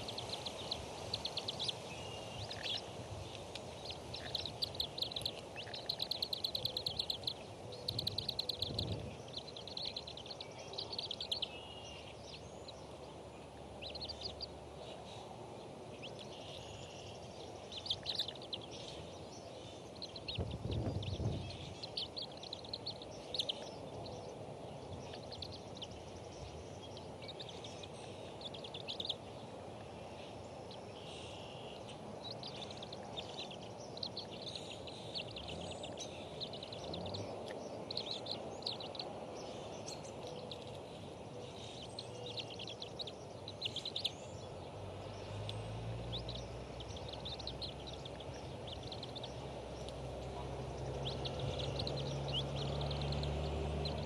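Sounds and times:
outdoor background hiss: 0:00.0 - 0:54.0
high rapid bird chirping: 0:03.7 - 0:13.0, 0:17.6 - 0:29.3.

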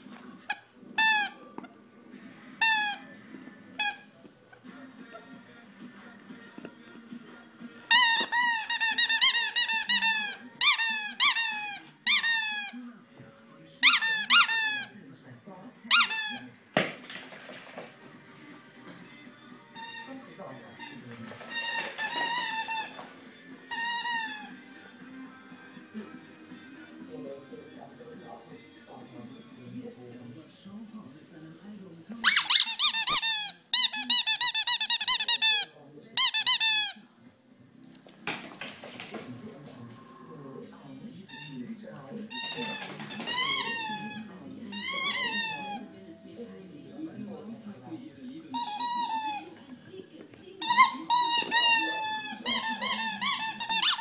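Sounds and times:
rubber squeaky toy squeaking: 0:00.5 - 0:01.4, 0:02.6 - 0:03.0, 0:03.6 - 0:04.6, 0:07.9 - 0:12.8, 0:13.8 - 0:14.9, 0:15.9 - 0:16.4, 0:19.8 - 0:20.2, 0:20.8 - 0:23.0, 0:23.7 - 0:24.5, 0:32.2 - 0:37.0, 0:41.3 - 0:41.6, 0:42.3 - 0:45.8, 0:48.5 - 0:49.5, 0:50.6 - 0:54.0.

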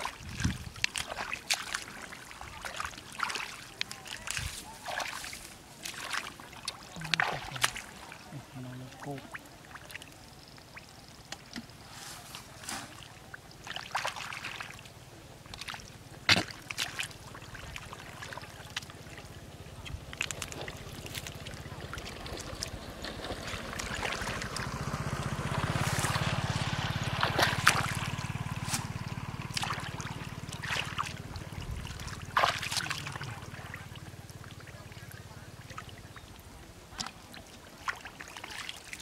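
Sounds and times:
hands splashing in muddy water: 0:00.0 - 0:08.7, 0:11.4 - 0:14.8, 0:15.5 - 0:19.2, 0:19.8 - 0:34.0
low steady hum: 0:00.0 - 0:37.8.

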